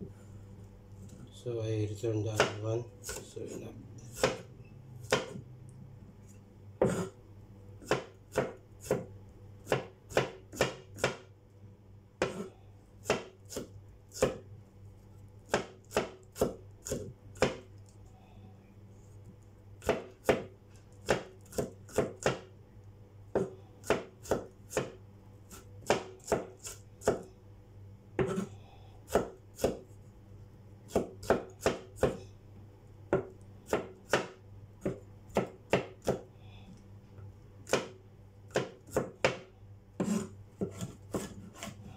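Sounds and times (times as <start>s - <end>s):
knife chopping on wooden board: 2.3s - 3.3s, 4.1s - 5.4s, 6.8s - 7.2s, 7.8s - 11.3s, 12.2s - 14.4s, 15.5s - 17.7s, 19.8s - 22.5s, 23.3s - 25.0s, 25.6s - 27.3s, 28.2s - 28.5s, 29.1s - 29.9s, 30.9s - 32.2s, 33.1s - 36.3s, 37.6s - 41.8s.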